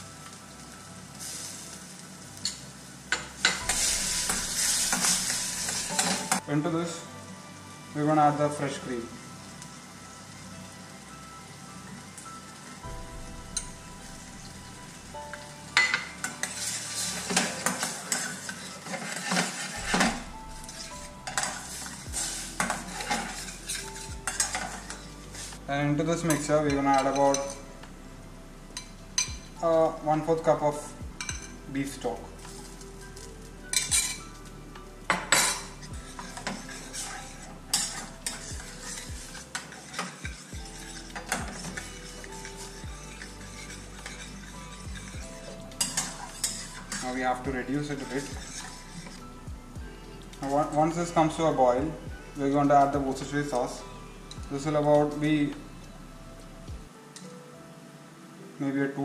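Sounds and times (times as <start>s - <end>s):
sauce sizzling: 0.0s - 26.5s, 27.2s - 51.7s
spatula scraping pan: 3.4s - 6.4s, 14.1s - 25.7s, 32.4s - 34.4s, 35.1s - 49.3s.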